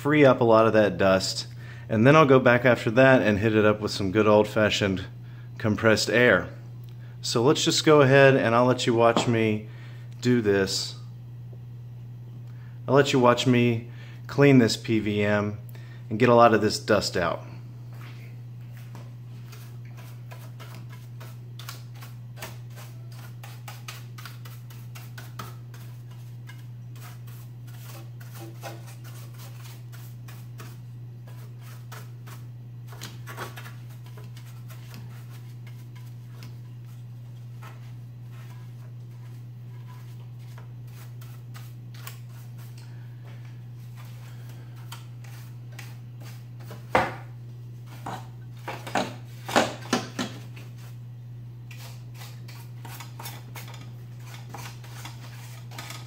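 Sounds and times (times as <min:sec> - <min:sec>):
brush scratching over metal: 0:18.8 - 0:46.9, 0:51.7 - 0:56.0.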